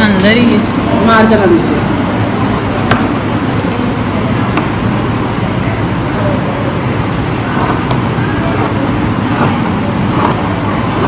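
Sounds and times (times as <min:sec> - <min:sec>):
loud background rumble: 0:00.0 - 0:11.0
shears clicking through fabric: 0:08.5 - 0:11.0.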